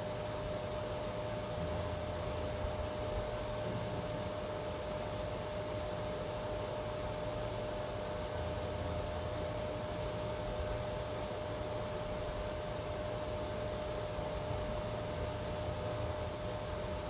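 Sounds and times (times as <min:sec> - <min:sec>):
thin steady whine: 0:00.0 - 0:17.0.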